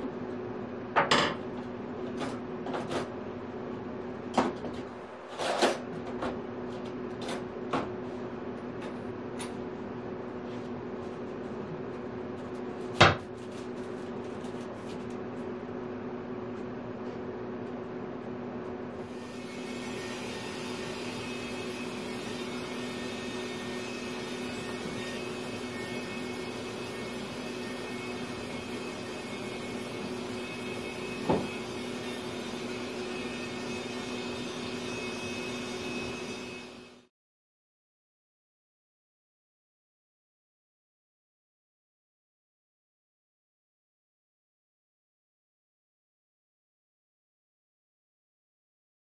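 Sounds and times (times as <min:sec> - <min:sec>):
low machine hum: 0:00.0 - 0:36.7.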